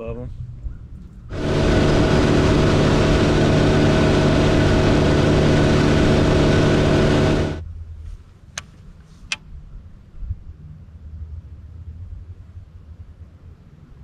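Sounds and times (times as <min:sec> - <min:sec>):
outboard motor running: 0:01.3 - 0:07.6.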